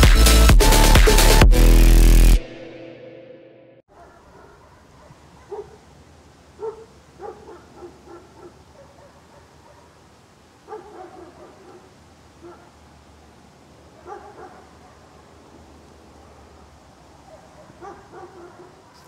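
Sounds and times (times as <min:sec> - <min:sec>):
dog barking faintly: 0:03.9 - 0:05.9, 0:06.6 - 0:10.0, 0:10.6 - 0:12.8, 0:14.0 - 0:15.3, 0:16.2 - 0:19.0.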